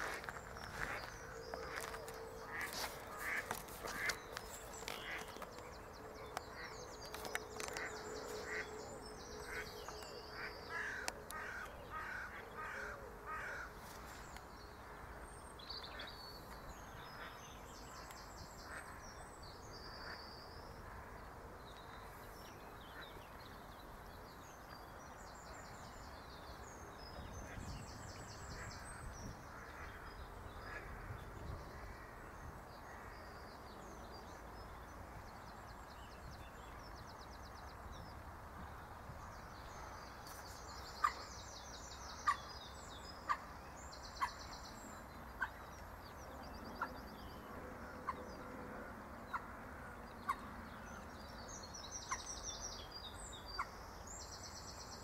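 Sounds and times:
songbird singing: 0.0 - 55.0
lower repeated bird calls: 40.3 - 55.0.

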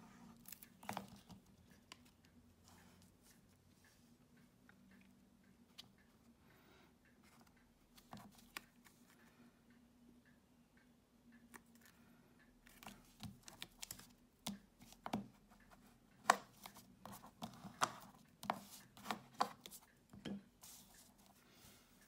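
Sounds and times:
paper taps rubs and rustles: 16.2 - 21.4.

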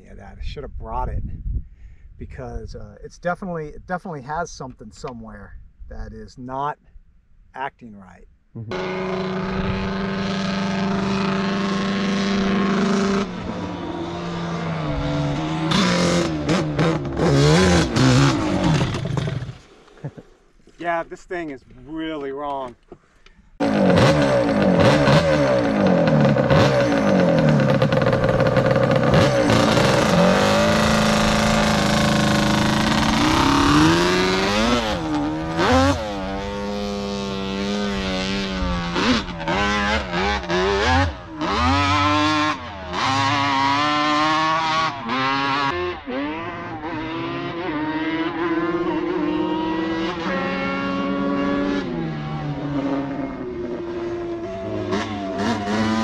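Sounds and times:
quad engine revving: 8.6 - 20.2, 23.6 - 56.0.

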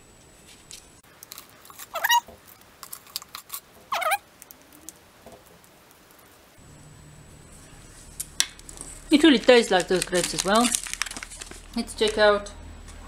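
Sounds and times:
foil packet crinkling: 1.1 - 4.6, 7.9 - 12.4
squeaky jam squelches: 1.1 - 5.0.

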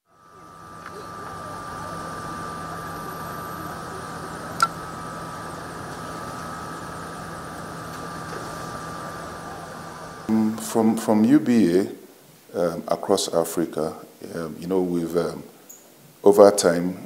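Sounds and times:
high whine: 0.0 - 12.1
low mechanical hum: 0.0 - 17.0.

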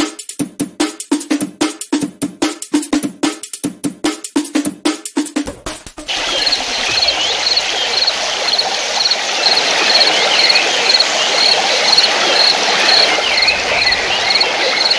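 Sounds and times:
steady hiss like running water: 5.5 - 14.9.

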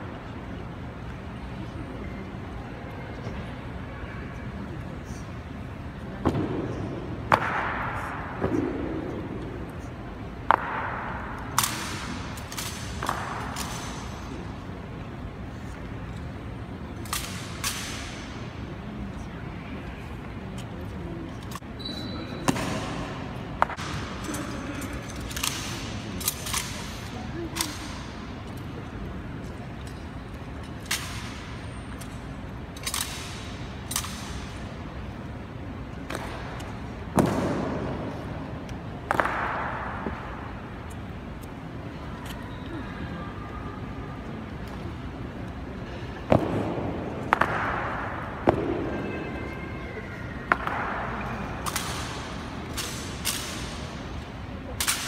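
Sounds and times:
rifles clacking and thudding: 23.6 - 28.6, 29.8 - 34.7, 51.6 - 54.2, 54.8 - 55.0.

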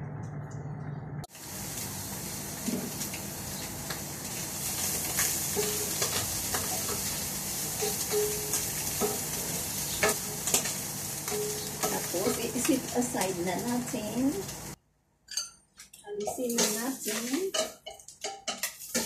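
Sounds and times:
fish sizzling in a pan: 1.3 - 14.8, 16.4 - 19.0
wooden spoon knocking and scraping pan: 4.8 - 14.5, 16.1 - 19.0.

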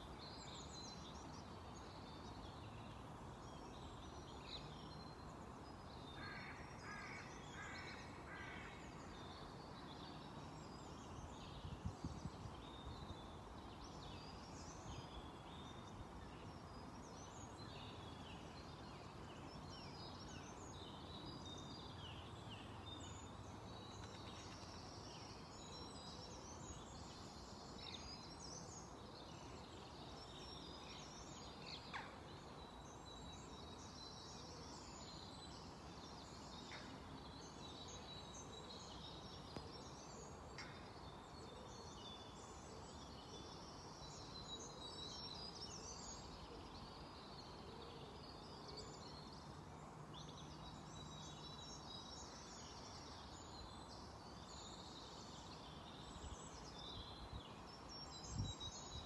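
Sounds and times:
low background noise: 0.0 - 59.0.

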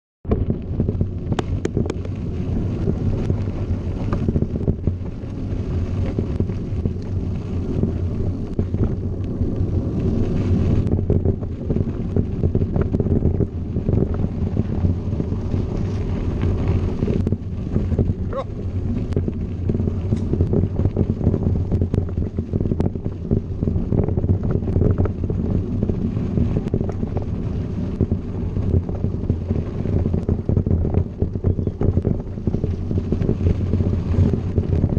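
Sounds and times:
bike tyres rumbling over gravel: 0.2 - 34.9
wind buffeting microphone: 0.2 - 34.9
sharp clicks and knocks: 0.3 - 2.2.

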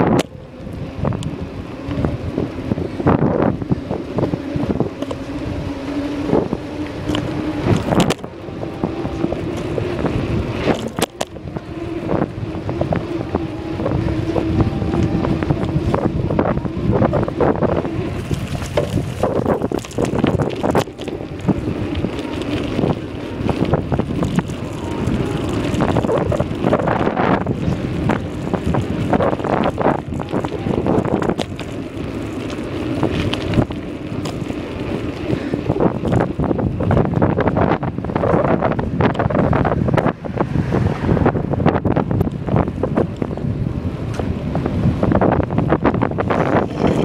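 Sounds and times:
bicycle tyre rumble: 0.0 - 47.0
wind buffeting microphone: 0.0 - 47.0
bike rattling knocks: 18.2 - 37.1.

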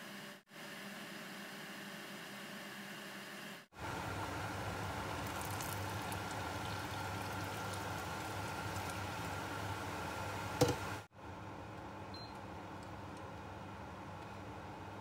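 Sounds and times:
water boiling hard in pot: 3.8 - 11.1
water pouring: 5.0 - 9.8.

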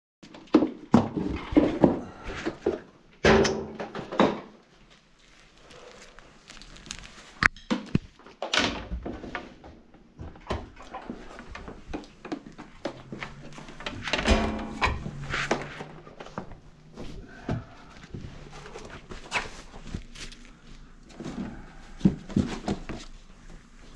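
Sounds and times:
equipment knocking and clattering: 8.8 - 16.6
cabinet door opening: 13.0 - 16.5.

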